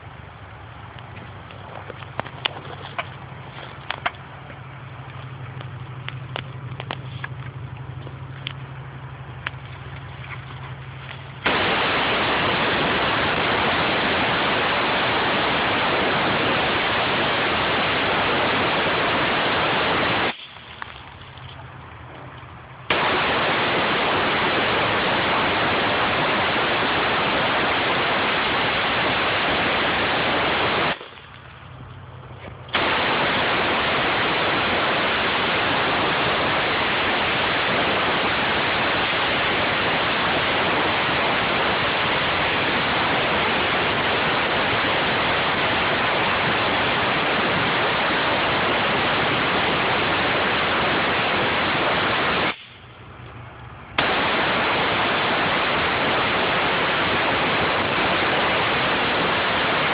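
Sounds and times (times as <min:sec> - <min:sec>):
compressed air hissing: 0:11.4 - 0:20.5, 0:32.8 - 0:52.9.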